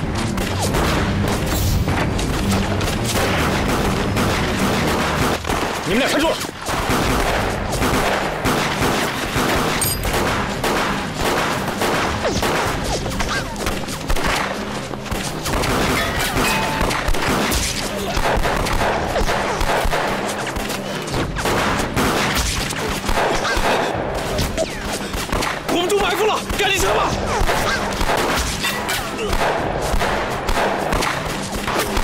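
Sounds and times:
pistol fire: 0:03.1 - 0:05.9, 0:06.7 - 0:12.9, 0:14.1 - 0:24.0, 0:27.3 - 0:28.6, 0:29.2 - 0:32.0.

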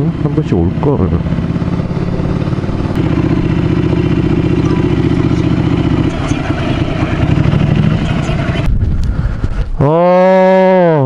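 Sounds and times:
motorcycle engine pulsing: 0:00.0 - 0:08.8.

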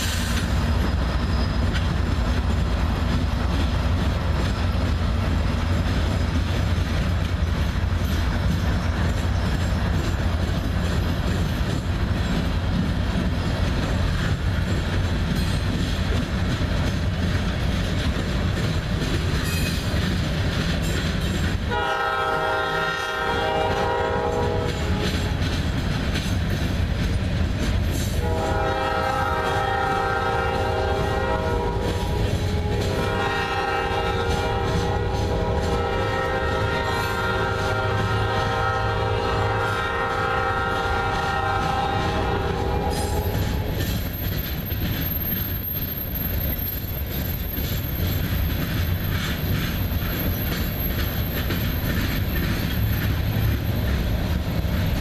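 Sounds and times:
freight train rumbling and clacking: 0:00.0 - 0:55.0
locomotive horn blasts: 0:21.7 - 0:25.4, 0:28.2 - 0:43.8.

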